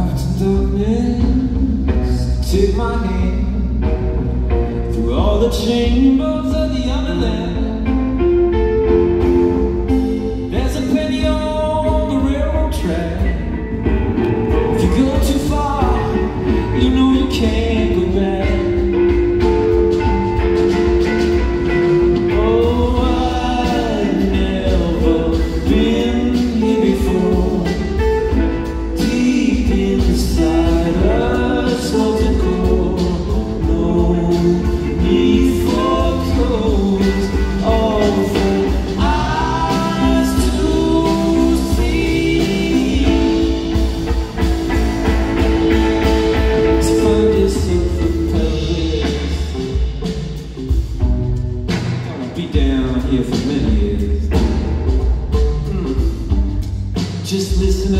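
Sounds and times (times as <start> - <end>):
live rock band playing: 0.0 - 57.9.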